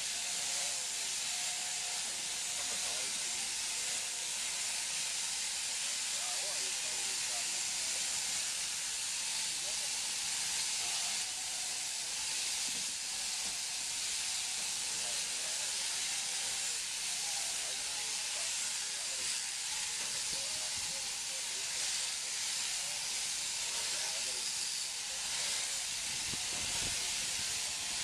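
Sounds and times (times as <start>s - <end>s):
shearing handpieces hissing: 0.0s - 28.0s
faint voices: 14.9s - 28.0s.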